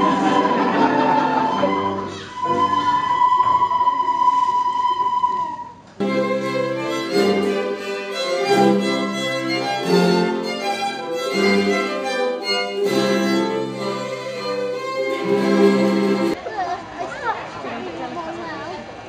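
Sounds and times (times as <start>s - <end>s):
cello: 6.0s - 16.4s
ukuleles strumming: 6.0s - 16.4s
violin playing a tune: 6.0s - 16.4s.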